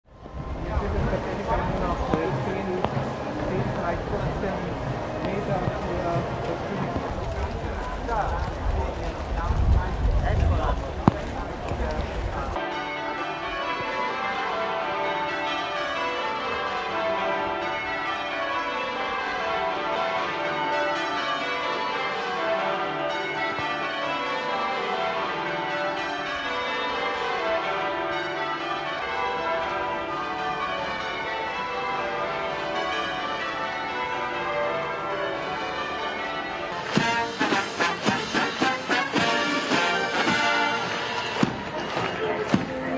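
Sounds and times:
church bells ringing changes: 0:12.4 - 0:42.9.

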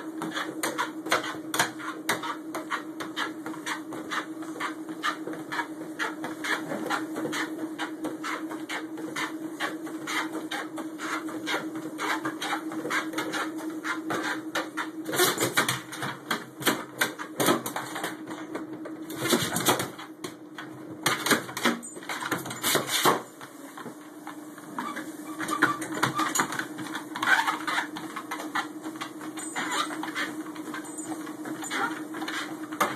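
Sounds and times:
irregular knocks and scuffs: 0:00.0 - 0:32.9
treadmill motor hum: 0:00.0 - 0:32.9.

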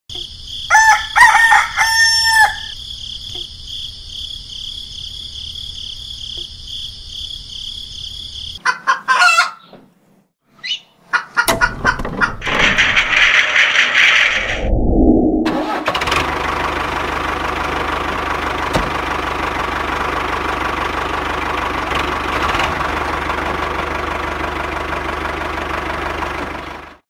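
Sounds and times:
rooster crowing: 0:00.7 - 0:02.8, 0:08.9 - 0:09.6
high-pitched hum: 0:13.0 - 0:16.0.

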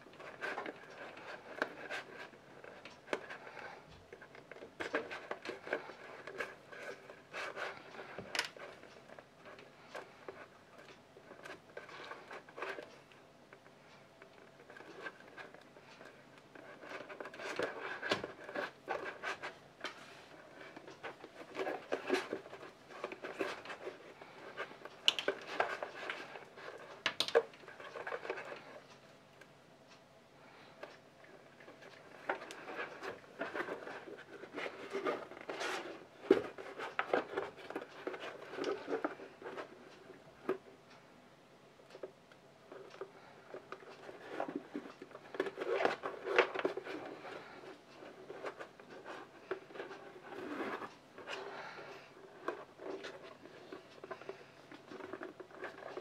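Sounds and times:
faint steady hum: 0:00.0 - 0:56.0
hand tools tapping and scraping: 0:14.3 - 0:28.9, 0:30.5 - 0:40.7, 0:42.7 - 0:56.0.

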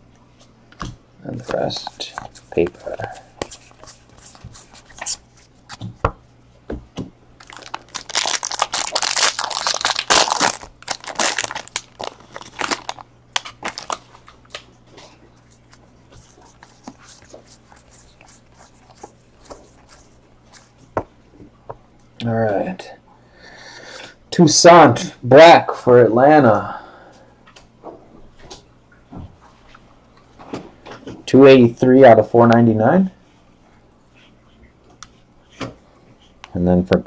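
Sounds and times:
foil wrapper tearing and crinkling: 0:07.4 - 0:14.6
cards clicking and rustling: 0:07.4 - 0:14.7.

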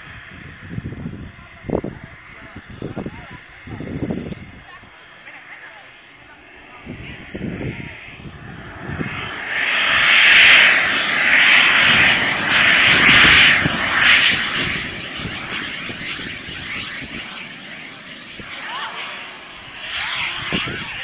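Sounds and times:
model airplane engine whine: 0:00.0 - 0:21.0.

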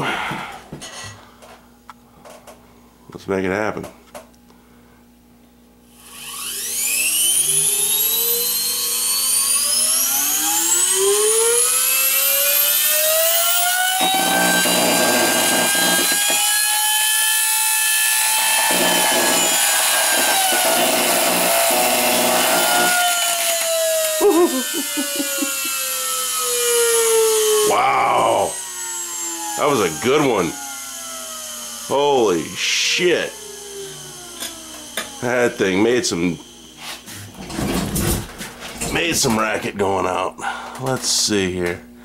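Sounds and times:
vacuum motor whining: 0:05.9 - 0:37.6.

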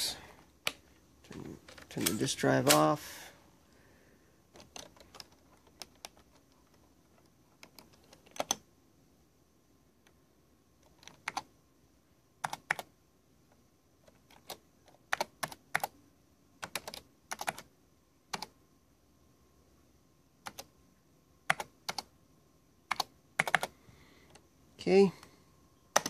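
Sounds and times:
computer keyboard typing: 0:04.5 - 0:08.7, 0:10.8 - 0:11.5, 0:12.4 - 0:12.9, 0:14.1 - 0:16.0, 0:16.6 - 0:17.7, 0:18.3 - 0:18.6, 0:20.4 - 0:20.7, 0:21.4 - 0:22.1, 0:22.9 - 0:24.4.

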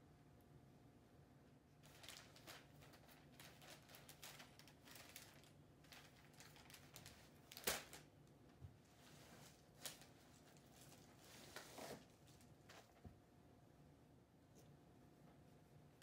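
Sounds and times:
wrapping paper rustling: 0:01.8 - 0:08.1, 0:09.0 - 0:13.0.

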